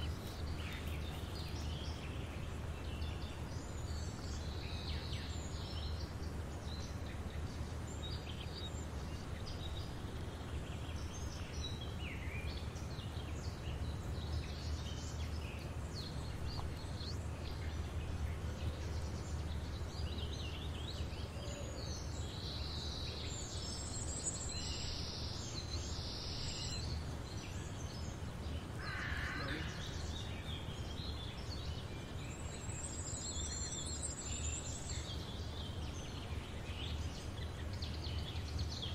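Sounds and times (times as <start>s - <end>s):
lower bird call: 28.8s - 30.3s.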